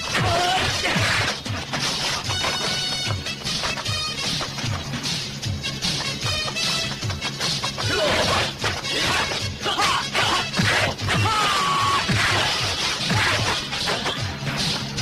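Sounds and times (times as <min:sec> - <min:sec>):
background music with steady beat: 0:00.0 - 0:15.0
fight punches and impacts: 0:05.9 - 0:14.8.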